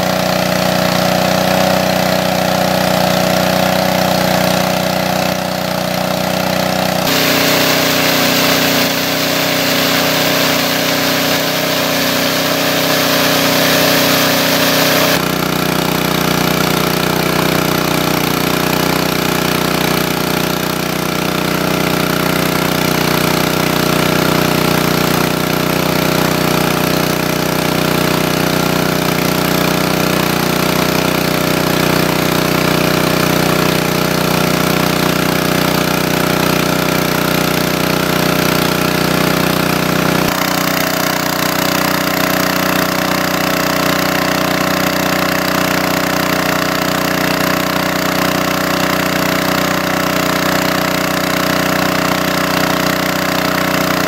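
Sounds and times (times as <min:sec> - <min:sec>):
water pump engine running: 0:00.0 - 0:54.0
rush of water: 0:07.1 - 0:15.2.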